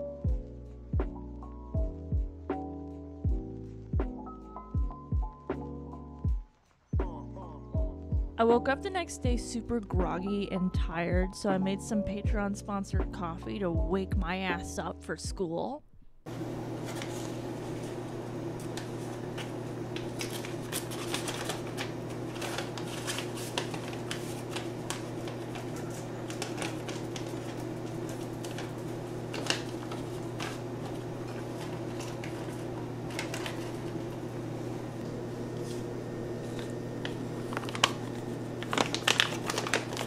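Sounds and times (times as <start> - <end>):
steady low hum: 12.2 - 40.0
paper filter crinkling: 16.8 - 18.0, 18.6 - 34.2, 36.4 - 40.0.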